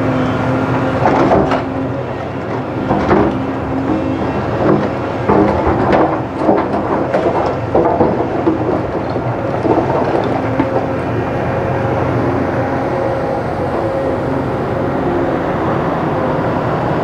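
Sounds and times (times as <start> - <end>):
excavator diesel engine: 0.0 - 17.0
bucket scraping rock: 2.4 - 11.0.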